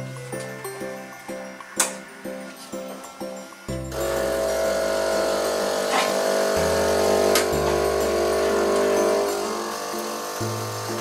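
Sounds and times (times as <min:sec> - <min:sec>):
espresso machine humming: 0:03.9 - 0:11.0.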